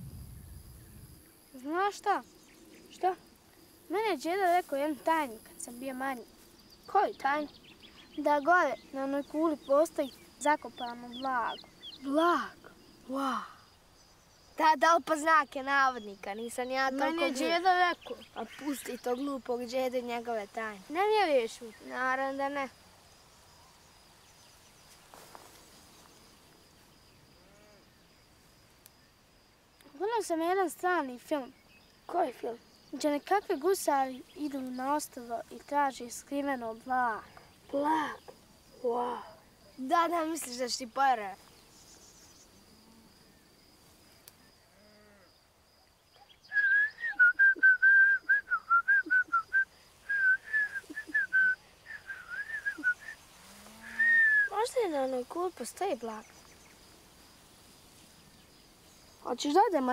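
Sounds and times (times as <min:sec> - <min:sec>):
high-pitched insect trill: 0:00.0 - 0:59.9
person whistling a tune: 0:46.5 - 0:53.1, 0:54.0 - 0:54.5.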